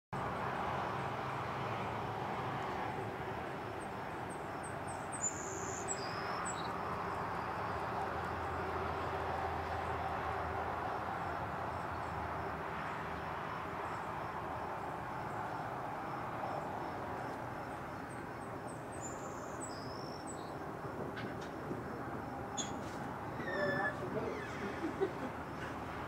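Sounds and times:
insect chirping: 3.5s - 9.1s, 10.9s - 21.0s, 21.8s - 25.7s
bird chirping: 4.2s - 6.8s, 18.1s - 20.6s, 22.6s - 24.4s.

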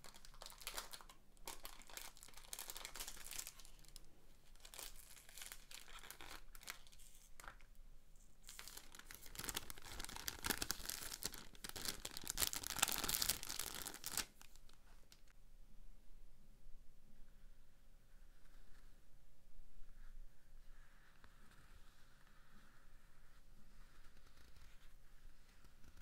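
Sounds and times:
plastic bag crinkling: 0.0s - 4.0s, 4.6s - 7.6s, 8.5s - 15.3s.

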